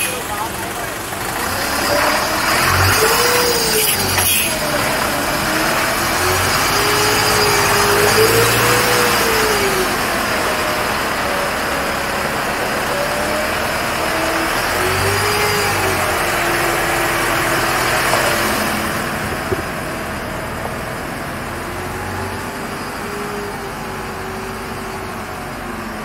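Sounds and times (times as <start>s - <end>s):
diesel truck engine running: 0.0s - 26.0s.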